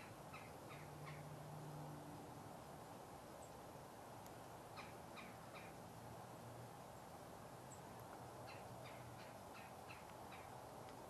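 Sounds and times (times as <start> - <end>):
birds calling harshly: 0.0 - 1.3, 4.8 - 5.8, 7.7 - 10.6.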